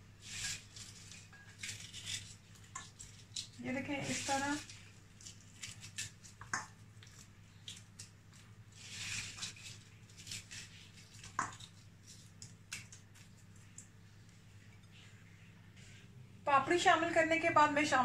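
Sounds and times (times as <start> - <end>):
crackers crackling and snapping: 0.4 - 14.0.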